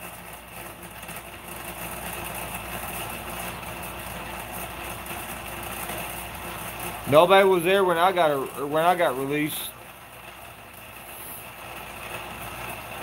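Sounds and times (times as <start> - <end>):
mechanical hum: 0.0 - 13.0.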